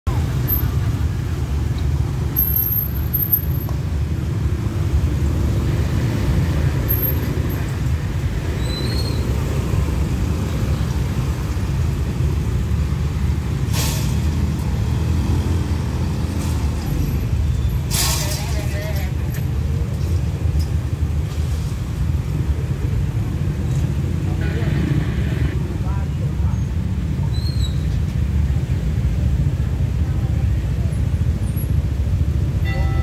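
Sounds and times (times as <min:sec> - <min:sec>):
motorcycles and cars passing: 0:00.1 - 0:33.0
brief hiss: 0:13.7 - 0:14.3.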